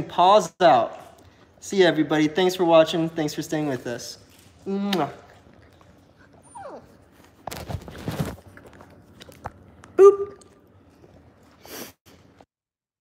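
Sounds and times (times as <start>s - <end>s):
puppy mouthing and chewing: 4.2s - 7.4s
rubbing and handling noise: 6.8s - 9.9s.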